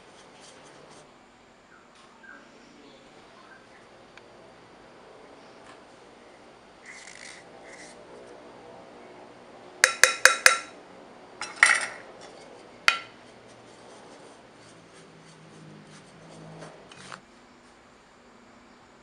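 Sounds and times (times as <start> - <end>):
wooden spoon stirring flour: 0.0 - 1.1, 12.2 - 17.2
measuring cup clinking on glass bowl: 9.8 - 10.7.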